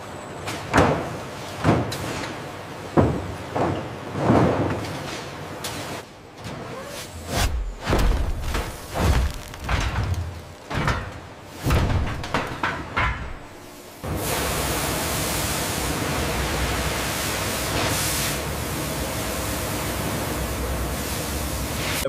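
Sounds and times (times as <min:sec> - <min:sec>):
high-pressure water jets hissing: 0:14.1 - 0:22.0.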